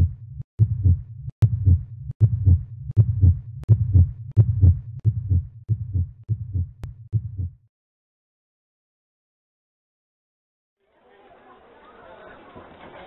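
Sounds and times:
heartbeat thumps: 0.0s - 7.6s.

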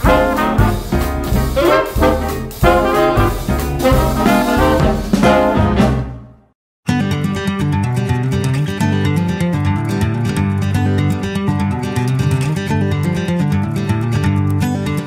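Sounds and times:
upbeat swing music with brass: 0.0s - 6.4s.

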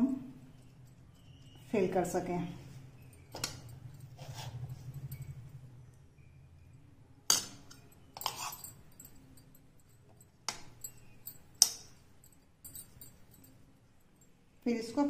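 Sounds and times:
spoon clinking on ceramic bowl: 7.3s - 9.5s.

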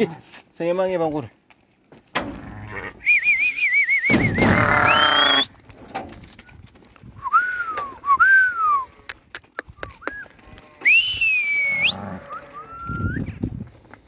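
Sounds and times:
person whistling: 3.0s - 5.5s, 7.2s - 8.9s, 10.8s - 12.0s, 12.6s - 13.3s
sheep bleating: 4.5s - 5.4s, 11.7s - 12.8s.

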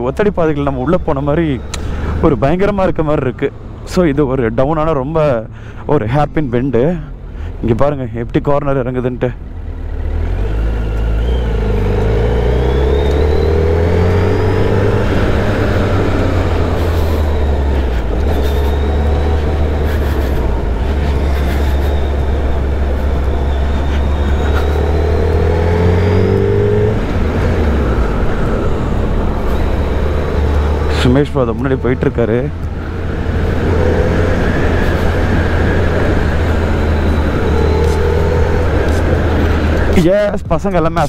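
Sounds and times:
motorcycle engine running: 11.2s - 40.1s.

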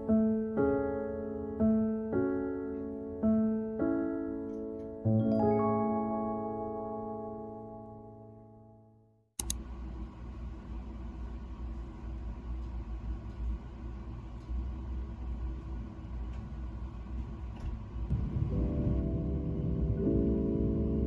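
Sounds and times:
low background rumble: 9.6s - 21.0s.

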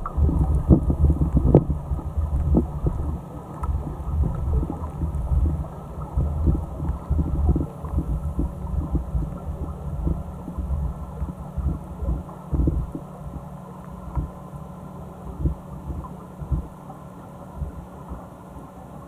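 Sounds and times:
small clicks and ticks: 0.0s - 14.4s
muffled underwater water rumble: 0.0s - 19.0s.

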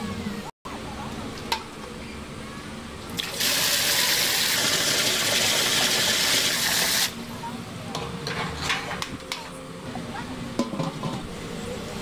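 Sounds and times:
water rushing into a pot: 3.2s - 7.2s.

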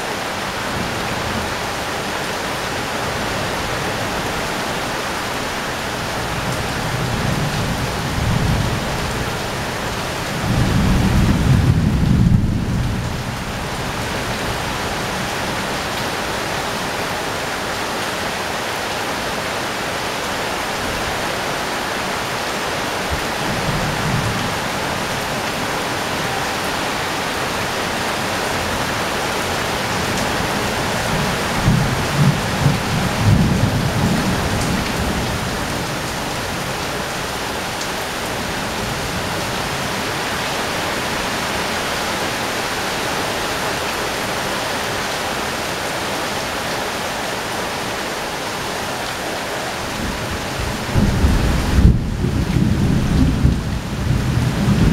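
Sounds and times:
heavy rain on corrugated roof: 0.0s - 54.9s
low thunder rumble: 10.4s - 13.5s, 50.0s - 54.9s.

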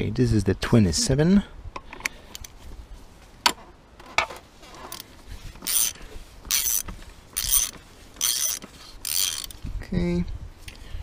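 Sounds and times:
wrench ratcheting: 4.9s - 9.6s
ratchet wrench clicks: 5.6s - 9.6s.

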